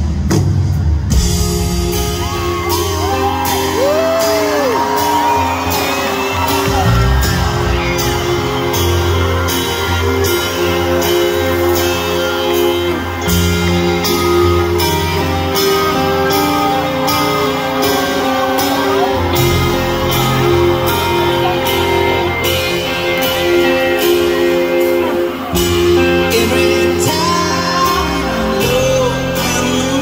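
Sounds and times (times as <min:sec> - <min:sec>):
live rock band playing: 0:00.0 - 0:30.0
man singing: 0:25.8 - 0:30.0.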